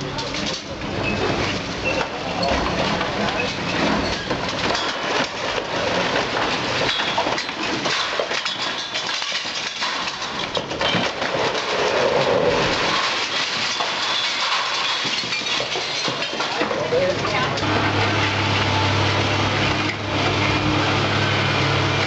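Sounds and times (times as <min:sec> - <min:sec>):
masonry crashing down: 0:00.0 - 0:22.0
rumble of falling rubble: 0:00.0 - 0:22.0
sharp knocks and cracks: 0:01.6 - 0:17.7.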